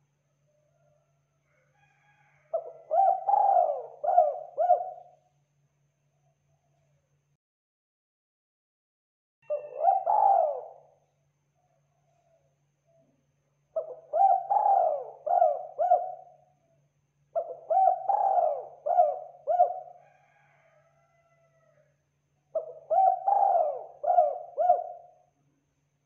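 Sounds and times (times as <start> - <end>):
dove cooing: 2.5 - 5.2, 9.4 - 11.0, 13.8 - 16.5, 17.4 - 20.5, 22.5 - 25.2.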